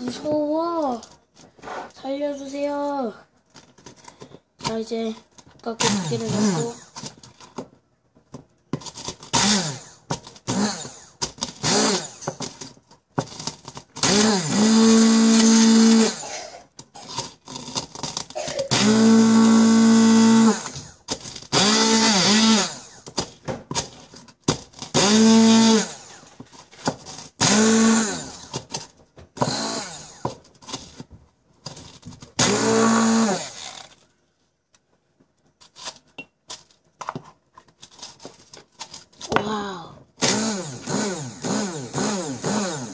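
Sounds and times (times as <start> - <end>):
stick blender bursts: 5.8 - 7.0, 9.2 - 12.6, 13.3 - 23.1, 24.8 - 26.3, 27.2 - 28.7, 29.4 - 30.4, 32.4 - 34.0, 39.4 - 42.9
crackers being ground: 8.3 - 39.6.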